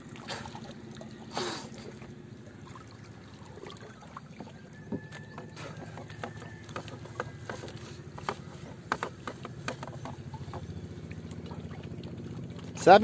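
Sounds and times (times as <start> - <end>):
small engine running: 5.6 - 13.0.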